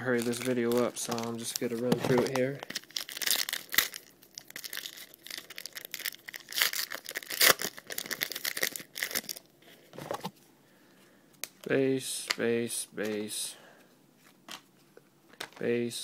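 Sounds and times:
foil wrapper tearing and crinkling: 0.0 - 9.5.

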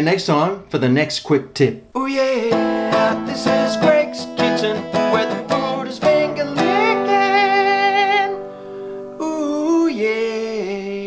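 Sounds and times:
acoustic guitar strums: 1.7 - 9.6
person singing with vibrato: 1.8 - 11.0.

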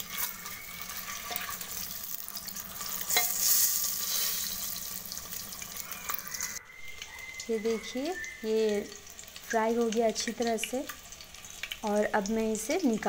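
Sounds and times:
spatula scraping a pot: 0.0 - 4.8
eggs sizzling in oil: 0.0 - 13.0.

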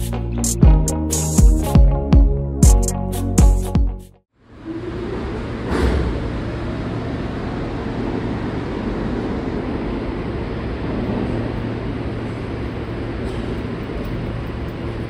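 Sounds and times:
subway wheels rumbling on rail: 4.5 - 15.0.

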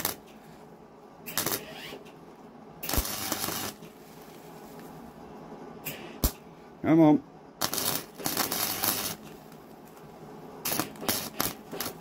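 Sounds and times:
welding arc crackling: 0.0 - 0.2, 1.3 - 2.0, 2.8 - 3.9, 7.6 - 9.4, 10.6 - 12.0.

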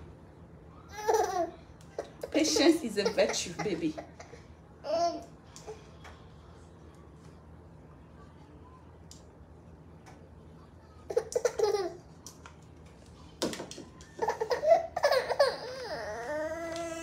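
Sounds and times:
baby laughing vocalising: 11.1 - 12.1, 14.2 - 16.0
baby crying: 14.3 - 17.0.

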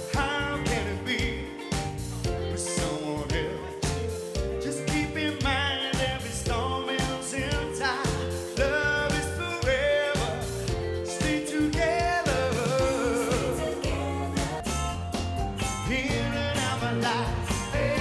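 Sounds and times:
man singing into microphone: 0.0 - 1.8, 2.5 - 3.9, 4.5 - 14.0, 15.8 - 18.0
musical accompaniment with beat: 0.0 - 18.0.

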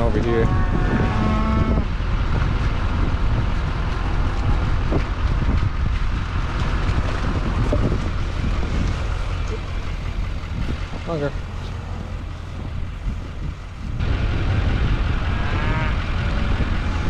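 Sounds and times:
vehicle engine low rumble: 0.0 - 17.0
wind noise on microphone: 0.0 - 17.0.

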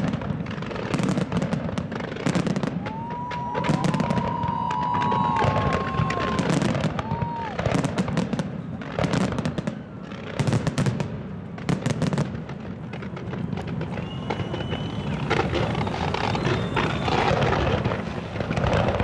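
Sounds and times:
fireworks bangs: 0.0 - 19.0
fireworks crackling: 0.0 - 19.0
thin whistle: 13.8 - 17.6.

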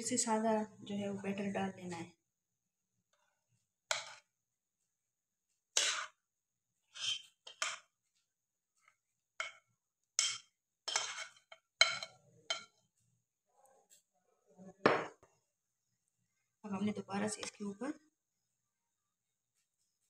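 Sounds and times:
metal spoon clinking on bowl: 10.2 - 12.8.

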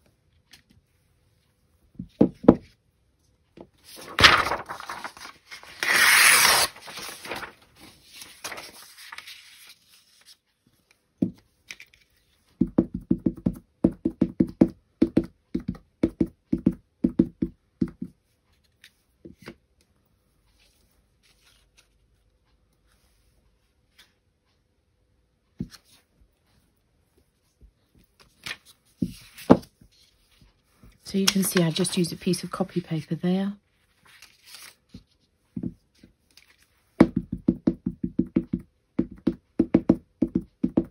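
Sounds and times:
paper being torn by hand: 4.0 - 7.5
ink pad tapping on rubber stamp: 12.6 - 18.1, 37.0 - 40.9.

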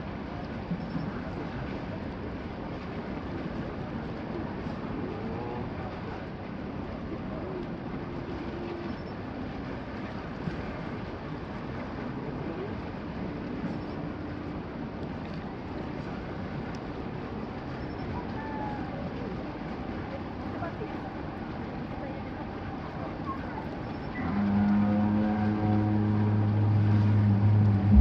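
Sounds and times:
faint voices: 18.0 - 28.0.

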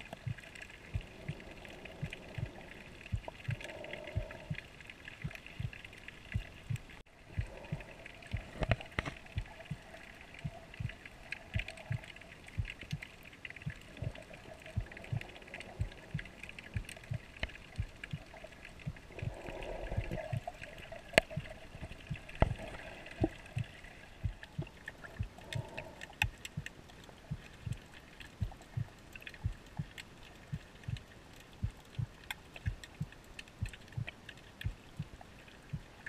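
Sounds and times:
muffled water noise: 0.0 - 36.0
soft low underwater thuds: 0.0 - 36.0.

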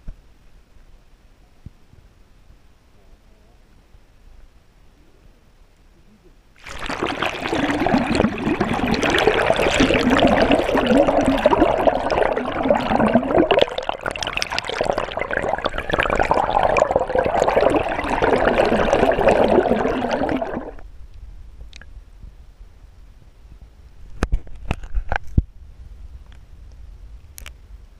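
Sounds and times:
water rushing and bubbling: 6.6 - 20.8.

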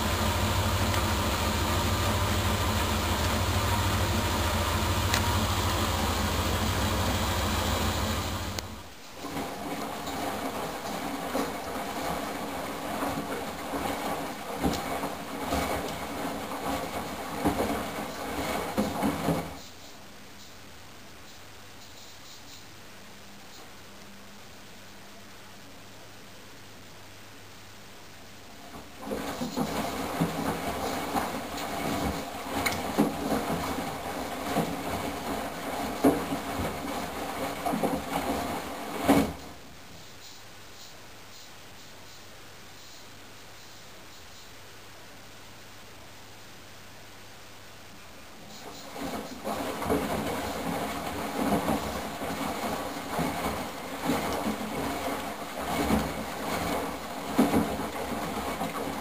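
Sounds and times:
washing machine drum turning: 0.0 - 19.6, 29.1 - 39.4
water sloshing: 0.0 - 19.6, 29.0 - 39.5, 48.6 - 59.0.

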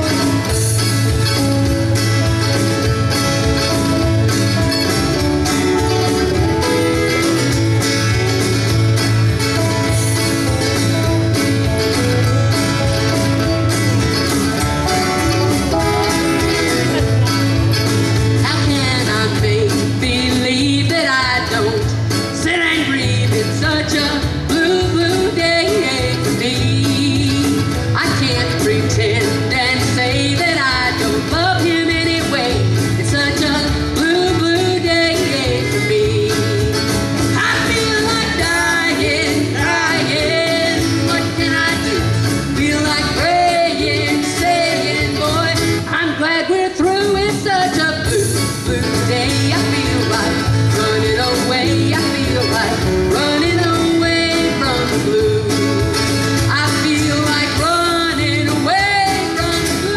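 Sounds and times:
country band playing: 0.0 - 59.9
woman and man singing: 18.4 - 59.9.

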